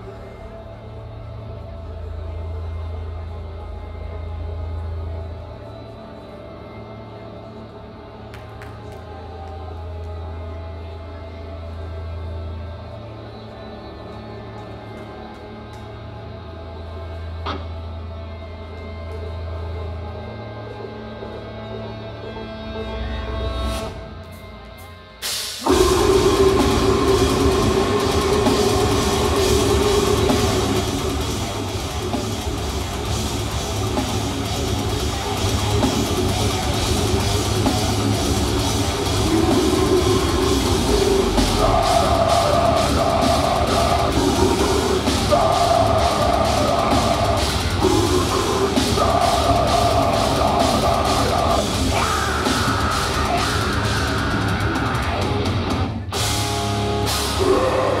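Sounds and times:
heavy metal music: 0.0s - 58.0s
distorted guitar chords: 23.4s - 58.0s
fast drumming: 25.6s - 56.4s.

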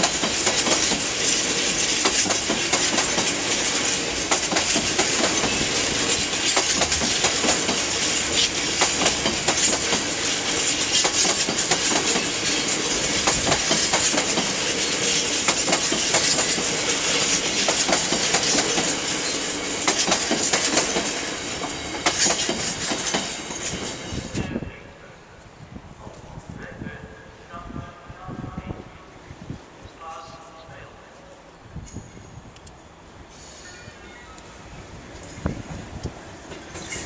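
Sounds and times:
train wheels clacking over rail joints: 0.0s - 24.0s.

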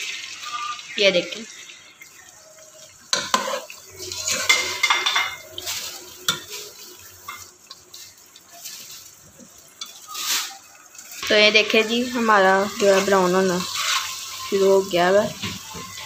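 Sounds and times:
onions frying: 0.0s - 16.0s
wooden spoon scraping pot: 12.8s - 14.2s.

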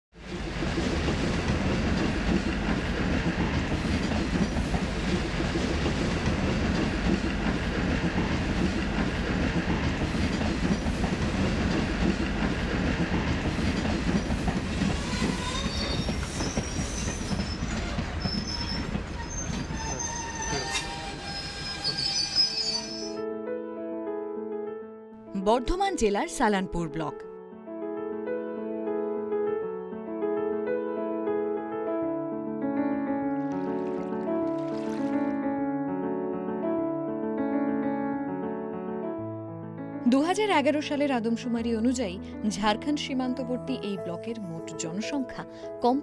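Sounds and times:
train rumbling on rails: 0.2s - 23.2s
wheel squeals: 14.8s - 23.2s.

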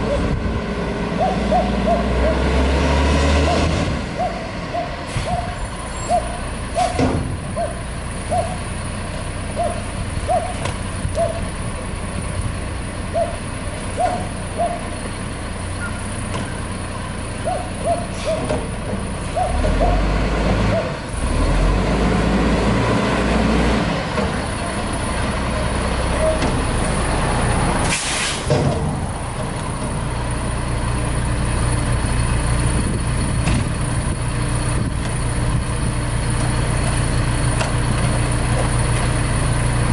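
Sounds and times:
truck diesel engine idling: 4.1s - 21.2s, 23.8s - 27.8s, 28.4s - 39.9s
air brake hiss: 27.8s - 28.5s.

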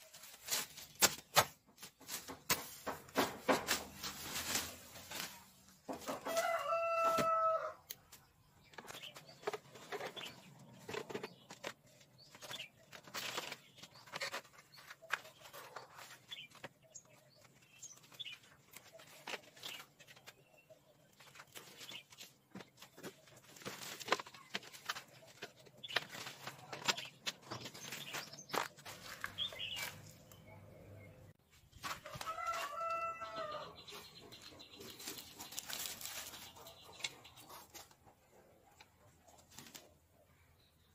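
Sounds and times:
rustling and snapping of plants: 0.0s - 16.7s, 21.2s - 30.4s, 34.8s - 37.8s, 39.3s - 40.0s
rooster crowing: 6.1s - 7.8s, 32.0s - 33.8s.

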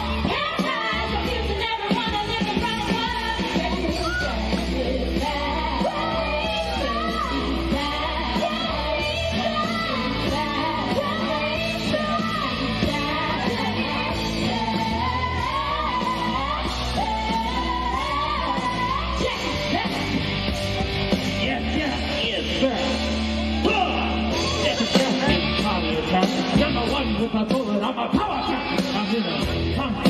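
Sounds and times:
woman singing rock song: 0.0s - 20.2s
loud backing track with bass: 0.0s - 30.0s.

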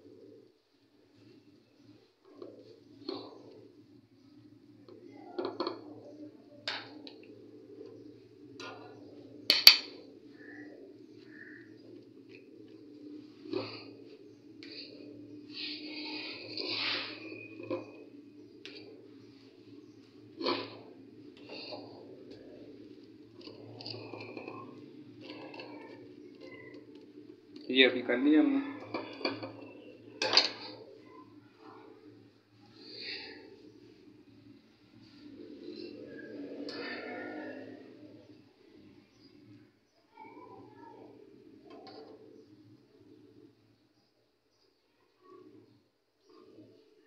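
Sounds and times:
metal spoon scraping: 8.6s - 10.0s, 14.9s - 18.8s, 23.3s - 27.0s.

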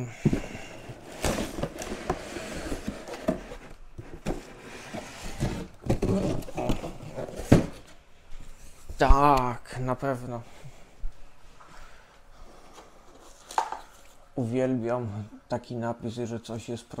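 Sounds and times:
cardboard box being opened: 0.8s - 7.8s
packaging scraping and rustling: 0.8s - 8.0s.

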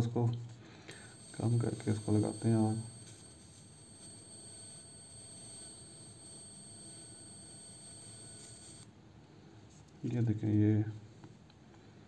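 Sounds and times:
electric arc lighter whine: 0.9s - 8.9s.

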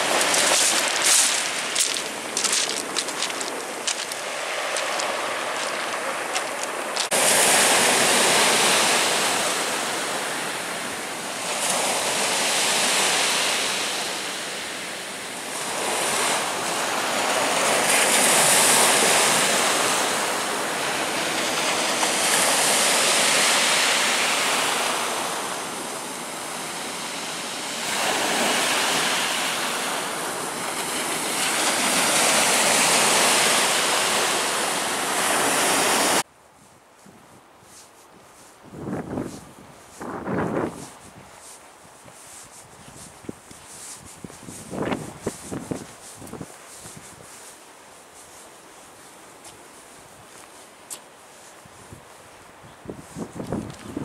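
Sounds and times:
waves breaking on shore: 0.0s - 36.3s.

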